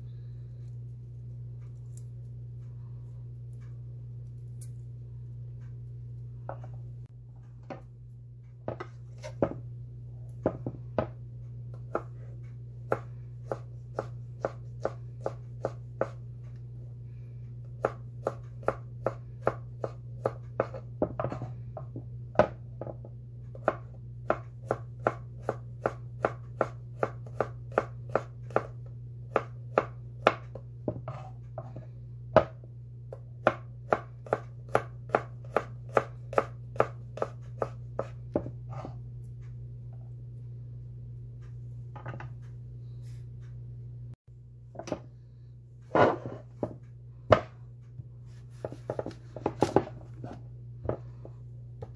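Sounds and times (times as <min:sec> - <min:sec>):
steady low hum: 0:00.0 - 0:51.9
knife chopping on wooden board: 0:10.4 - 0:11.2, 0:11.8 - 0:16.2, 0:17.8 - 0:23.0, 0:23.6 - 0:31.8, 0:32.4 - 0:32.6, 0:33.4 - 0:39.0, 0:45.9 - 0:47.6, 0:48.5 - 0:51.0.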